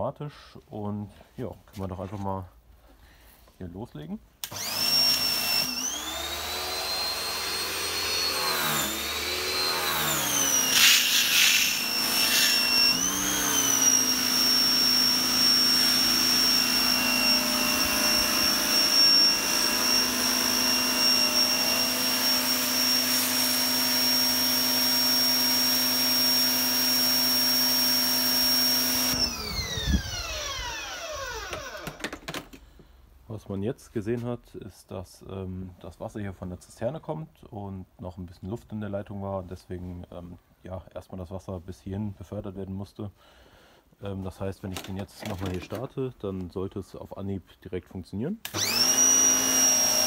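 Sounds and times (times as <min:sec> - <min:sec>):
pressure washer motor whine: 0:04.4 - 0:32.0, 0:48.5 - 0:50.0.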